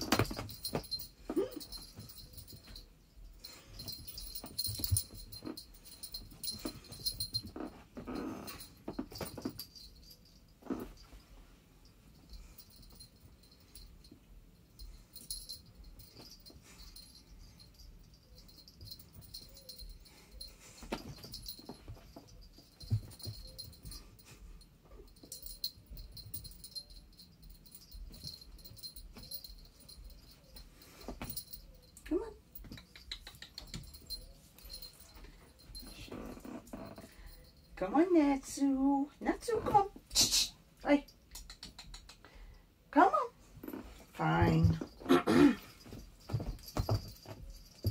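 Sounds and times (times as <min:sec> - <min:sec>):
cat collar jingling: 0:00.0 - 0:38.6, 0:43.2 - 0:47.9
paws thumping on carpet: 0:45.8 - 0:47.9.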